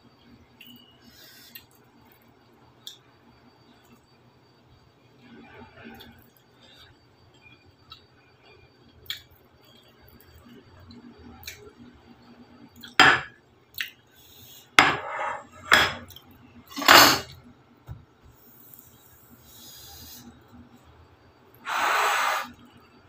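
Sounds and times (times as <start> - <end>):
ceramic plate clattering on table: 14.8 - 16.0, 16.7 - 17.3.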